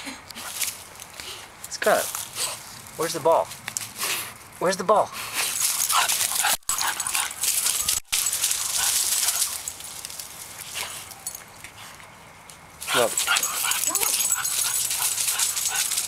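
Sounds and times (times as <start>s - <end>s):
rustling of leaves: 0.0s - 16.0s
dog whining and yipping: 13.0s - 16.0s.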